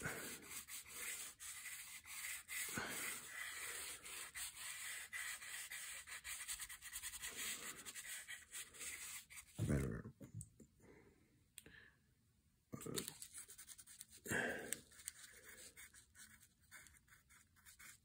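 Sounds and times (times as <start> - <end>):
pencil scratching on paper: 0.0 - 9.6, 13.1 - 14.2, 14.8 - 18.0.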